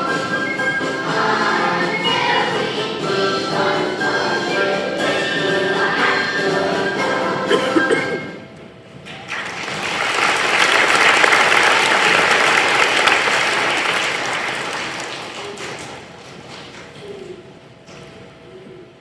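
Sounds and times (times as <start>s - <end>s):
children's choir singing: 0.0s - 8.4s
audience applauding: 9.2s - 16.9s.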